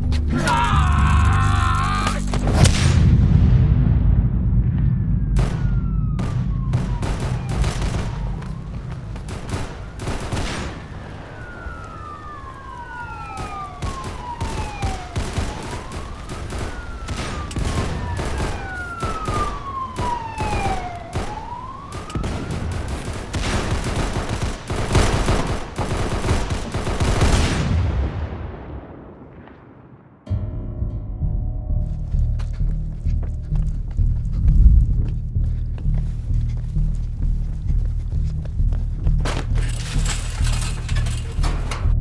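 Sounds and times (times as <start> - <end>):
police sirens wailing: 5.4 - 25.6, 33.0 - 42.0
rapid gunfire: 6.2 - 8.2, 9.2 - 10.9, 13.4 - 27.8.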